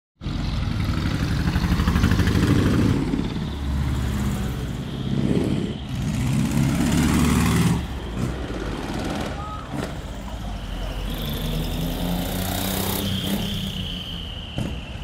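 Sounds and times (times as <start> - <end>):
truck engines driving past: 0.2 - 15.0.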